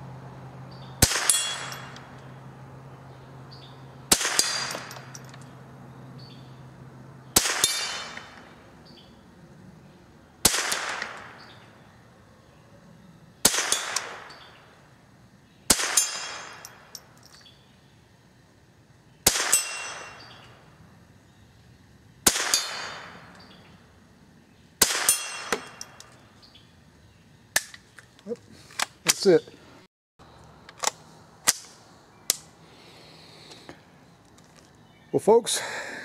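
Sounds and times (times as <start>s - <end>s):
rifle shots with ringing tail: 1.0s - 2.1s, 4.1s - 5.3s, 7.4s - 8.6s, 10.4s - 11.7s, 13.4s - 14.7s, 15.7s - 17.0s, 19.2s - 20.6s, 22.2s - 23.6s, 24.8s - 26.2s.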